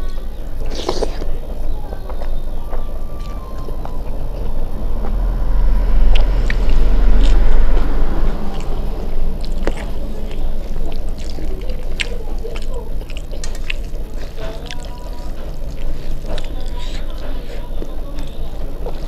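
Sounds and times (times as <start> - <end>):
person chewing food: 0.0 - 19.0
wet mouth clicks: 0.6 - 1.3
low rumble: 1.7 - 16.6.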